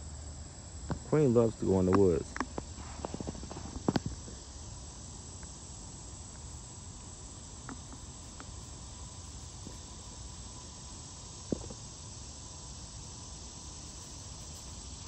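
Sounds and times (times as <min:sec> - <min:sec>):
faint steady tone: 0:00.0 - 0:15.0
insects chirping: 0:00.0 - 0:15.0
faint ticks: 0:05.4 - 0:05.6, 0:07.6 - 0:10.4.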